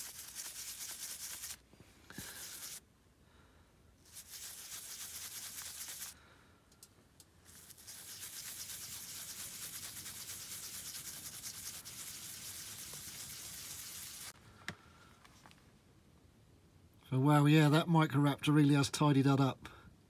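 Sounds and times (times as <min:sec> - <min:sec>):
air scribe buzzing on stone: 0:00.0 - 0:02.8, 0:04.1 - 0:06.2, 0:07.5 - 0:14.4.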